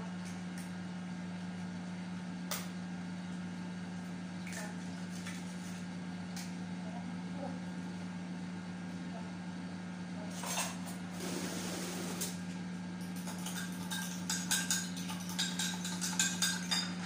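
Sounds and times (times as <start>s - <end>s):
fork clinking against glass bowl: 13.2s - 17.0s.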